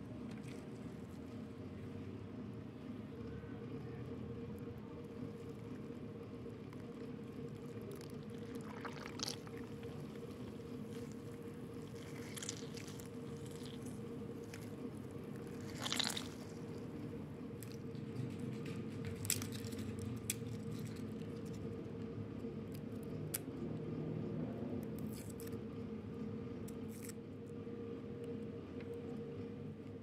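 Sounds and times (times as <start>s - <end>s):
steady low hum: 0.0s - 30.0s
wet squelches of hands mixing: 7.9s - 17.9s.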